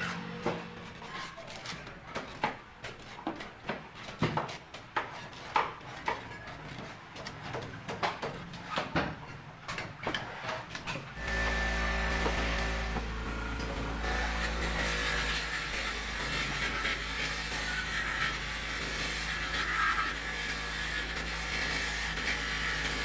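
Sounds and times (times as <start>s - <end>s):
machine whirring: 11.2s - 23.0s.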